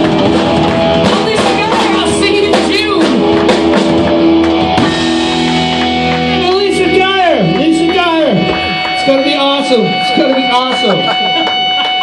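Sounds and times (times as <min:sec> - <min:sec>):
drum kit with cymbals: 0:00.0 - 0:06.0
electric guitars: 0:00.0 - 0:12.0.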